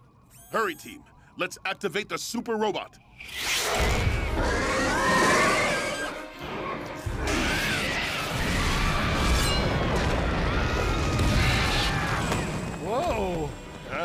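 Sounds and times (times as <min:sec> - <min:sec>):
dramatic music: 0:03.4 - 0:14.0.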